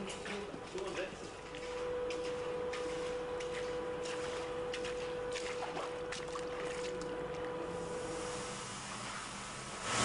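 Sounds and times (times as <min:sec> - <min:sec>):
steady hum: 0:00.0 - 0:10.0
footsteps splashing in water: 0:00.1 - 0:07.6.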